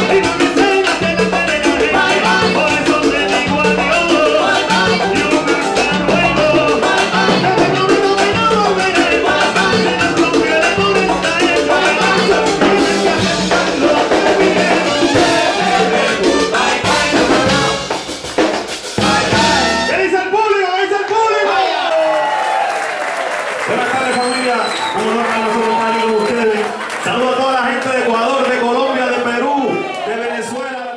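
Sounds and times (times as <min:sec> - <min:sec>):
male voices singing: 0:00.0 - 0:17.8
drums and hand percussion: 0:00.0 - 0:20.1
trumpet: 0:00.0 - 0:20.3.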